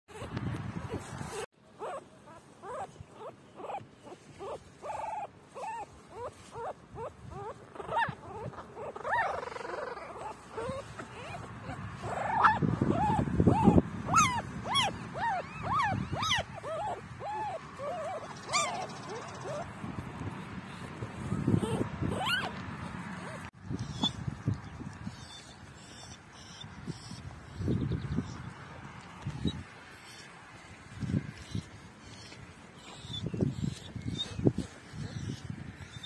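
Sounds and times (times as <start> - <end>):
puppies whimpering and squealing: 0.1 - 24.2, 31.4 - 36.0
hand rustling through grass: 3.8 - 8.8.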